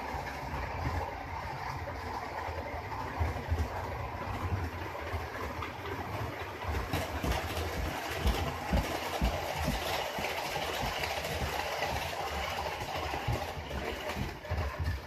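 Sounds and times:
model train motors whirring: 0:00.0 - 0:15.0
wheels clattering over rail joints: 0:00.0 - 0:15.0.

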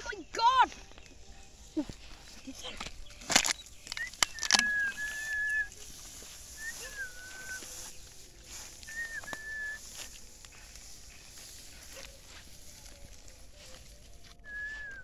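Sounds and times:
dry grass rustling and crackling: 0:00.0 - 0:15.0
whistled notes: 0:03.4 - 0:10.5, 0:12.8 - 0:15.0.

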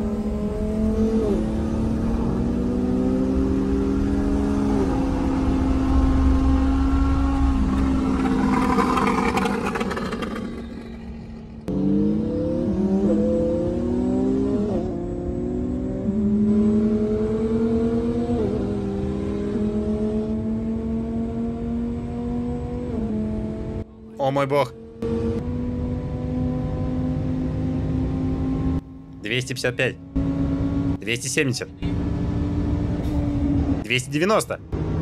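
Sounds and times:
wind and tyre noise: 0:00.0 - 0:24.2
car engine accelerating: 0:00.0 - 0:35.0.

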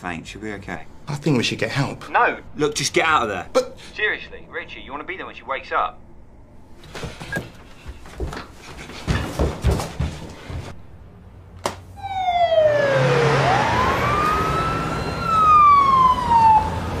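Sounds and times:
ambulance siren wailing: 0:12.0 - 0:17.0.

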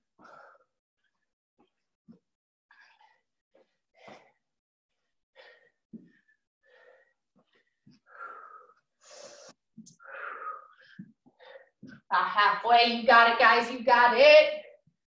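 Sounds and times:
person breathing hard: 0:02.7 - 0:11.9.

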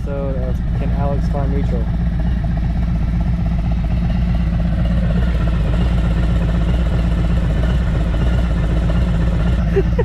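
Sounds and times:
motorcycle idling: 0:00.0 - 0:10.0.

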